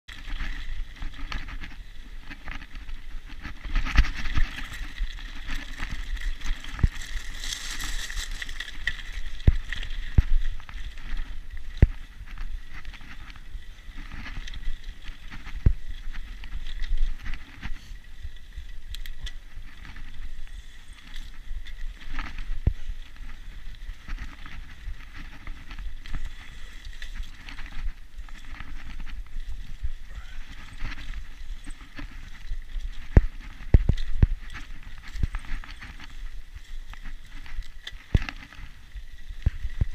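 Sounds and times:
bike knocking and rattling: 0.1 - 39.9
bike tyres rumbling on dirt: 0.1 - 39.9.

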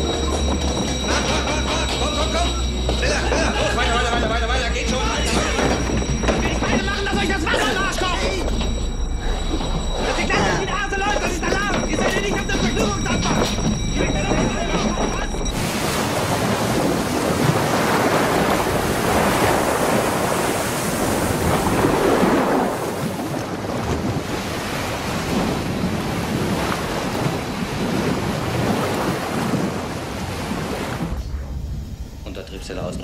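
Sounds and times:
wind noise: 8.3 - 32.3
rushing surging water: 15.5 - 31.1.

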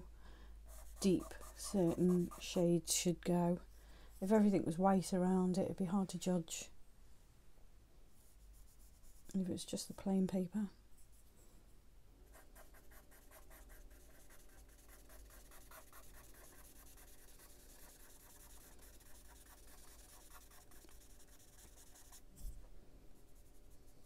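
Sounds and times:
charcoal pencil scratching paper: 0.7 - 2.7, 12.3 - 22.3, 23.3 - 24.0.

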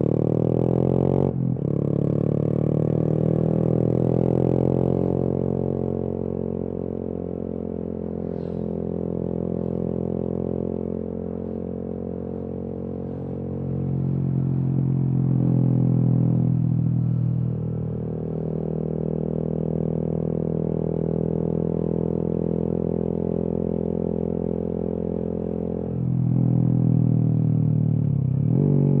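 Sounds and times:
motorcycle engine running: 0.0 - 29.0.

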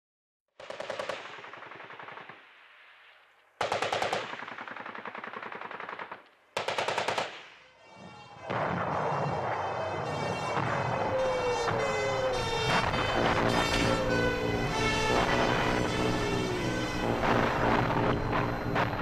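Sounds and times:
automatic gunfire: 0.6 - 2.6, 3.6 - 7.6.

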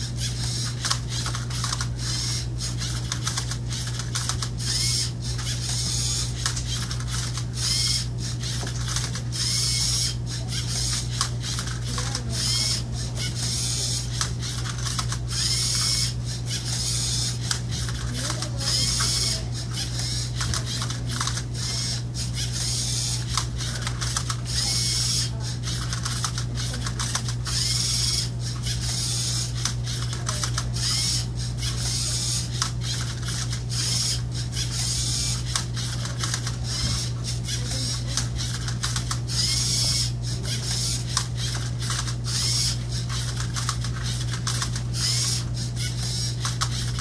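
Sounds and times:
low steady hum: 0.0 - 47.0
robot motors whirring: 0.0 - 47.0.

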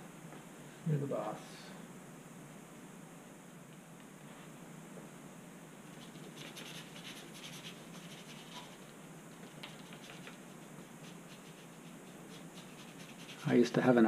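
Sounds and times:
paintbrush scrubbing: 6.0 - 13.7.

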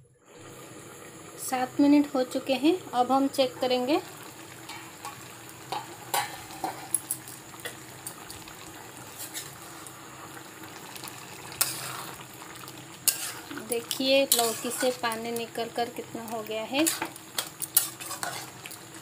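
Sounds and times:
curry simmering in a pan: 0.2 - 19.0
spoon scraping a metal pan: 9.1 - 9.6, 11.6 - 12.2, 13.0 - 15.1, 16.8 - 18.6.

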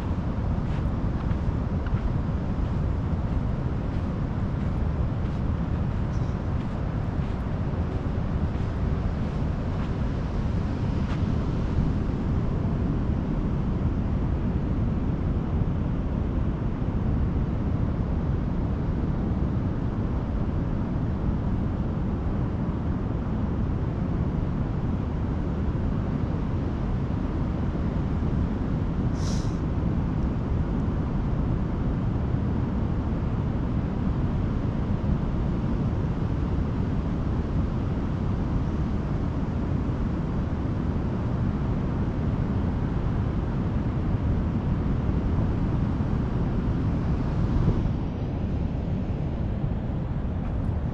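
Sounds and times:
ocean surf on beach: 0.0 - 14.2, 43.1 - 50.9
wind buffeting microphone: 0.0 - 20.0.

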